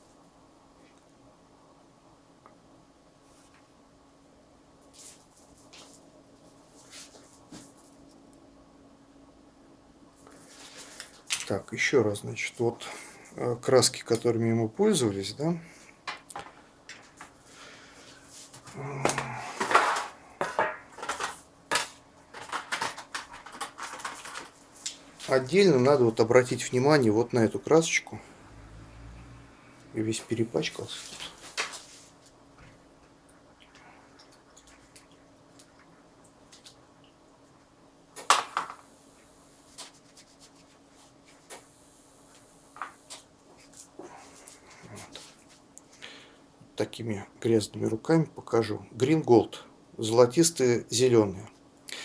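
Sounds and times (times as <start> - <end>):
small objects clattering on tabletop: 19.1 - 24.6, 38.2 - 38.9.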